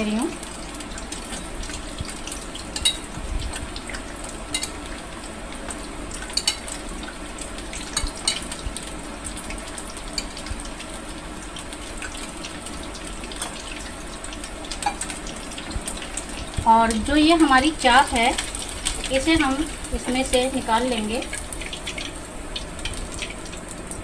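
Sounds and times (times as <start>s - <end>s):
food deep-frying in oil: 0.0s - 24.0s
spoon clinking on glass and steel: 2.8s - 3.0s.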